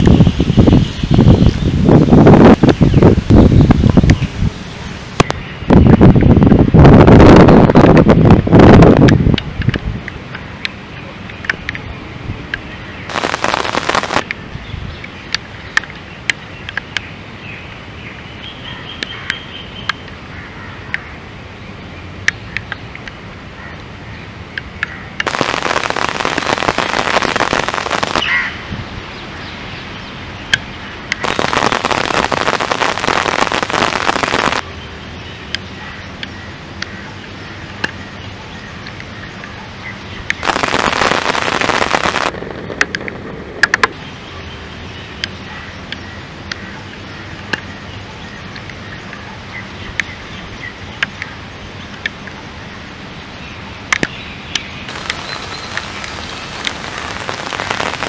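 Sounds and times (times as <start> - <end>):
rain falling: 13.1 - 14.4, 25.2 - 28.4, 31.1 - 34.7, 40.4 - 44.0, 54.9 - 58.0.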